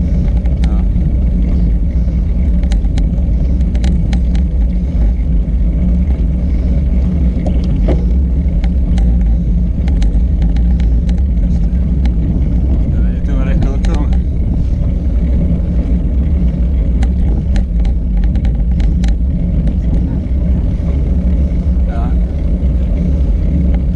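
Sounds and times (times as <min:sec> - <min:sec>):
road noise: 0:00.0 - 0:23.9
sharp ticks and rattles: 0:00.0 - 0:23.9
wind buffeting microphone: 0:00.0 - 0:23.9.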